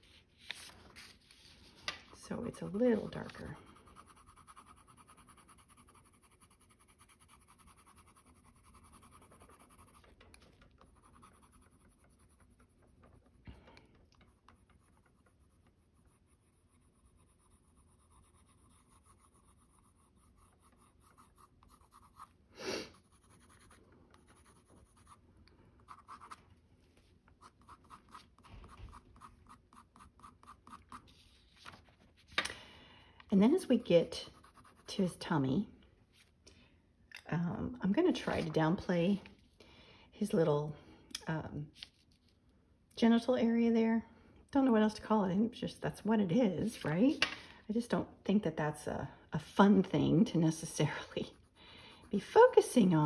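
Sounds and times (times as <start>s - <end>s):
colored pencil scratching on paper: 0.0s - 25.2s, 25.8s - 31.8s, 33.4s - 35.4s, 49.9s - 53.0s.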